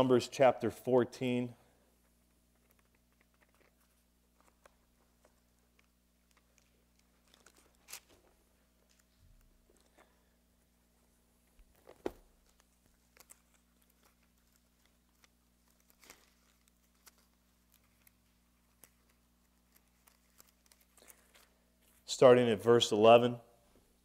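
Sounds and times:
pages being turned: 2.5s - 10.3s, 11.4s - 22.1s.

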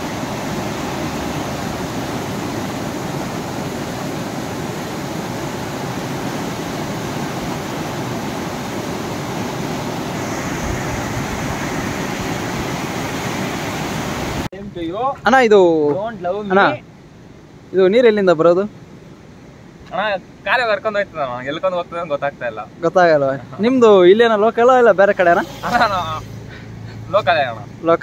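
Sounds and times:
river water rushing over rapids: 0.0s - 14.5s.

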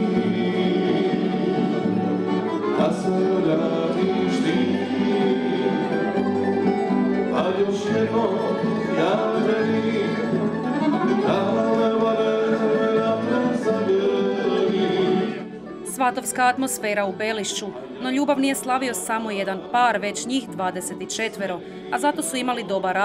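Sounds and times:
men singing: 0.0s - 15.8s
accordion: 0.0s - 23.0s.

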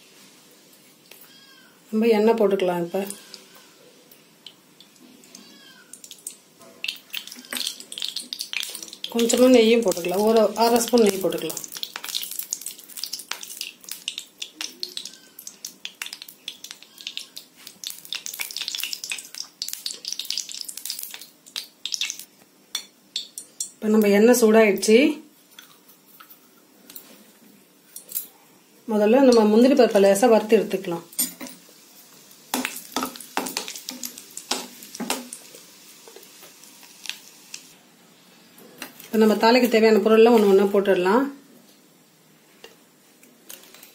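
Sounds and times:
ghee sizzling in hot oil: 4.4s - 25.1s, 29.3s - 37.8s.

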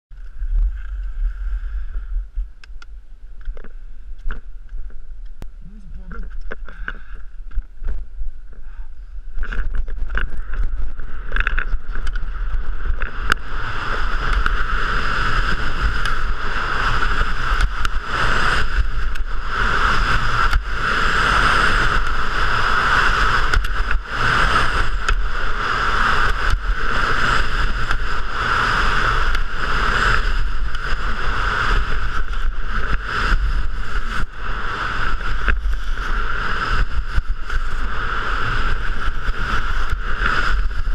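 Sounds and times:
wind rushing over microphone: 0.1s - 40.9s
skis scraping on snow: 9.4s - 40.9s.

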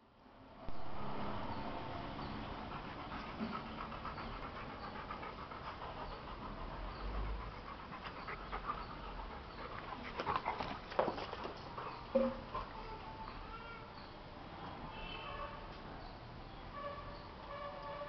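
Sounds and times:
dog panting: 2.5s - 13.4s.

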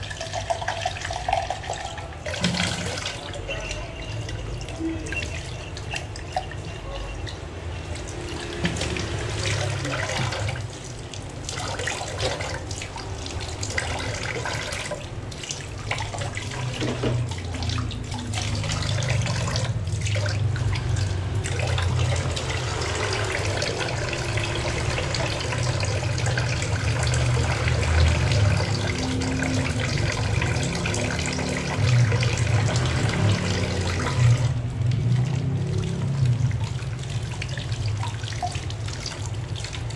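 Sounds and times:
water splashing on dishes: 0.0s - 39.9s
tap running into metal sink: 16.2s - 17.6s.

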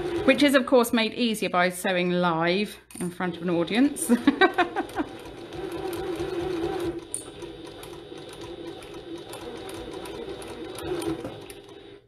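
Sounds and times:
sewing machine stitching: 0.0s - 0.6s, 3.2s - 12.0s.

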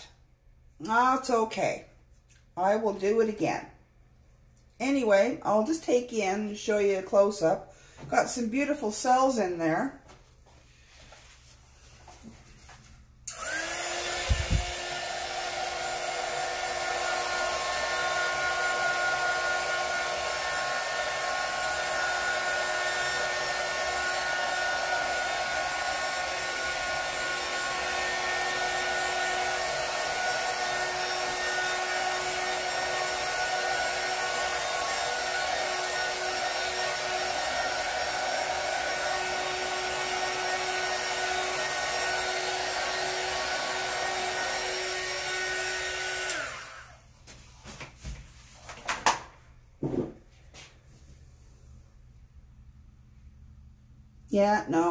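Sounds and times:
heat gun fan whining: 13.2s - 47.0s.

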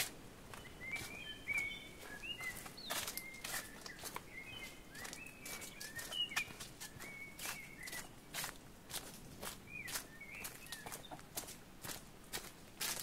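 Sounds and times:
footsteps on a trail: 0.0s - 13.0s
bird singing whistled notes: 0.6s - 8.2s, 9.7s - 11.1s.

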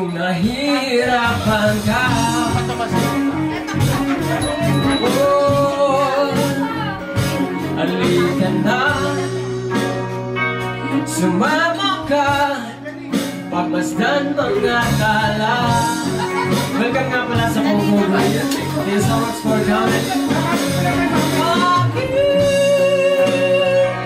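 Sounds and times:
drum kit: 0.0s - 24.0s
electric guitars: 0.0s - 24.0s
person singing: 0.0s - 24.0s.

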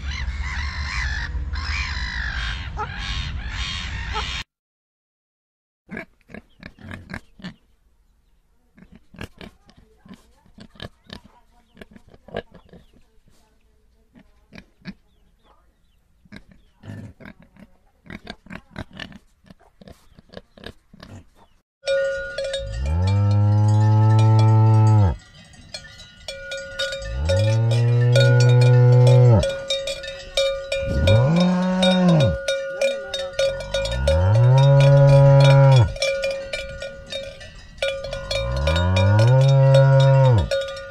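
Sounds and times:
cowbell ringing: 21.8s - 40.9s
cow mooing: 22.6s - 25.2s, 27.0s - 29.7s, 30.8s - 36.1s, 38.0s - 40.7s.

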